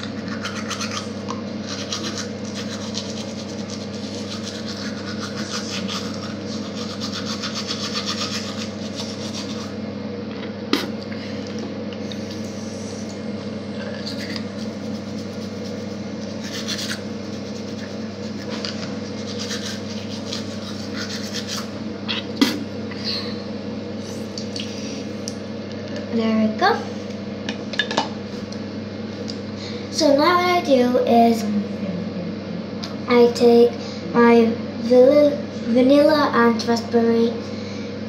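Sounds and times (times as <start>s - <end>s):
toothbrush scrubbing teeth: 0.0s - 9.8s, 13.8s - 21.7s
low hum: 0.0s - 38.0s.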